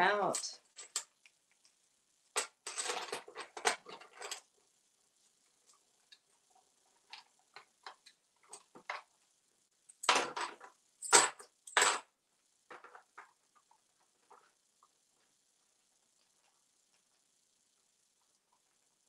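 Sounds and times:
plastic coins rattling: 2.4s - 4.5s.

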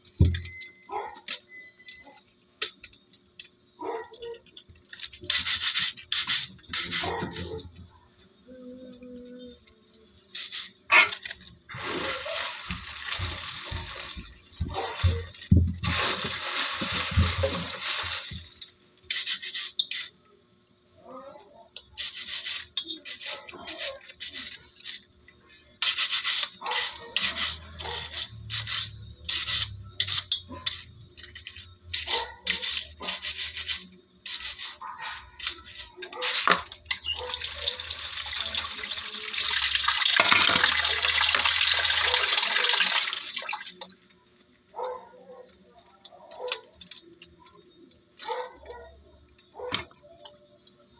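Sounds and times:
scrub brush scrubbing shell: 10.4s - 20.1s.

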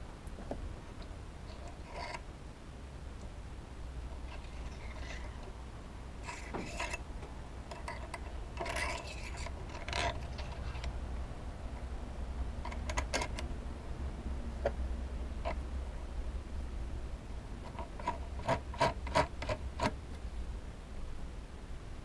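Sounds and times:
scrapes and light metal clicks: 1.0s - 2.3s, 4.2s - 5.6s, 6.2s - 11.0s, 12.6s - 13.5s, 17.6s - 20.0s
wood and metal sliding on rod: 1.5s - 2.2s, 4.3s - 5.5s, 6.2s - 7.0s, 7.7s - 10.9s.

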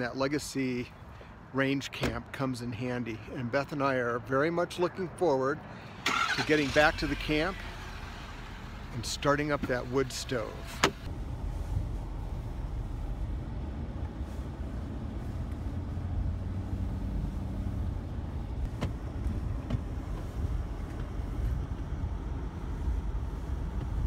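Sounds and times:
pickup truck engine rumble: 5.9s - 24.0s.

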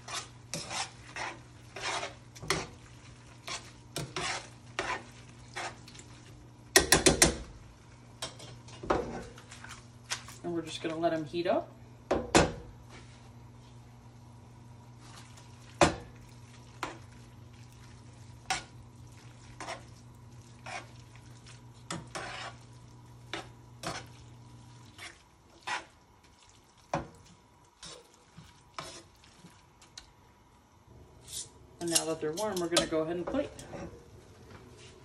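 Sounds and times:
metal tongs scraping a skillet: 0.0s - 6.0s, 19.6s - 19.9s, 20.6s - 21.0s, 21.9s - 22.7s, 23.3s - 24.2s, 24.9s - 25.9s, 28.8s - 29.1s, 31.2s - 34.0s
faint sizzle: 0.0s - 35.0s.

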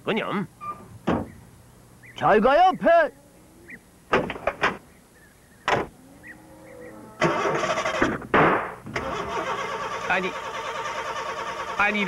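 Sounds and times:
van starter cranking engine: 7.2s - 8.2s, 8.9s - 12.0s.

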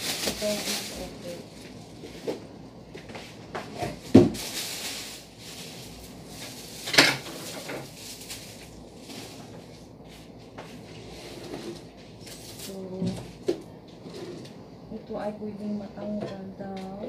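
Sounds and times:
packaging rustling: 0.0s - 2.2s, 3.9s - 9.8s, 11.7s - 12.8s.

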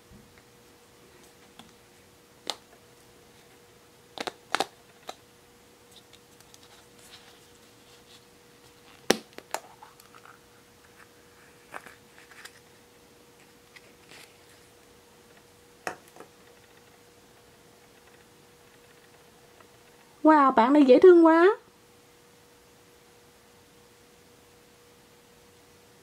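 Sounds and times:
plastic egg cracking open: 4.1s - 5.2s.

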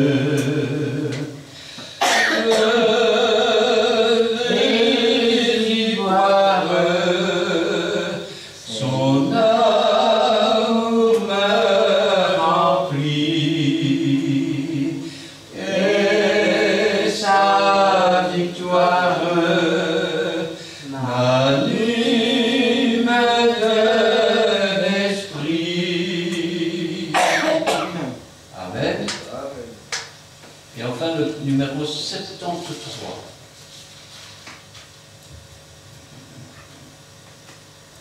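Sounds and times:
hymn singing: 0.0s - 1.4s, 2.0s - 28.0s.

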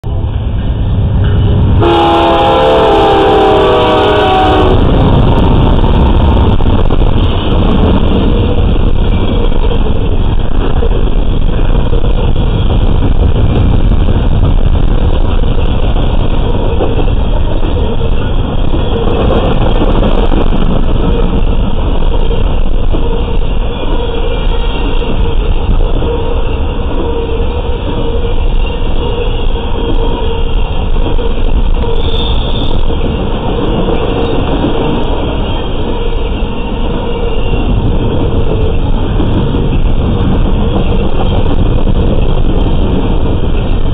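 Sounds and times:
freight cars rumbling on rails: 0.0s - 43.9s
locomotive air horn: 1.8s - 5.1s.

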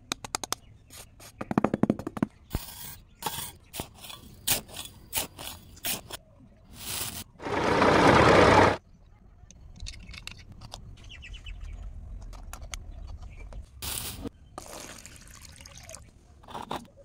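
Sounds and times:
scoop scraping sand: 6.8s - 8.8s.

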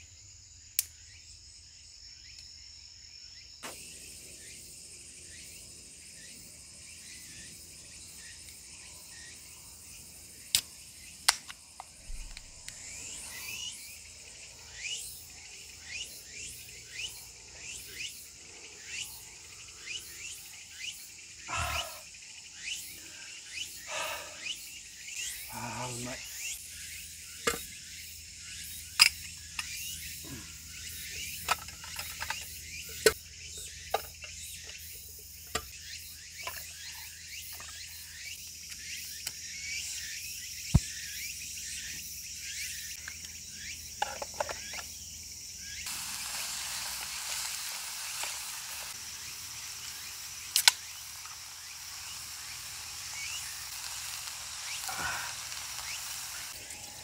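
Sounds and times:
insects droning: 0.0s - 57.0s
steady hiss: 3.6s - 33.2s, 45.7s - 57.0s.

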